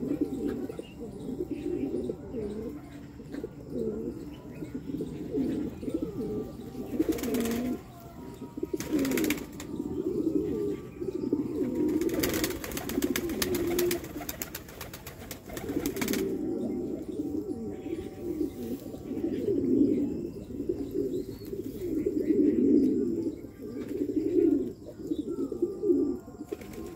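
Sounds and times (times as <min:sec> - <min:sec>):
pigeons cooing: 0:00.0 - 0:26.9.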